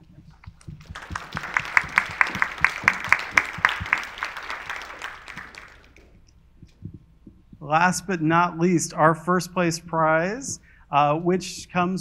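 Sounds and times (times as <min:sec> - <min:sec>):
close hands clapping steadily: 0:00.3 - 0:07.0
audience applauding: 0:00.7 - 0:06.1.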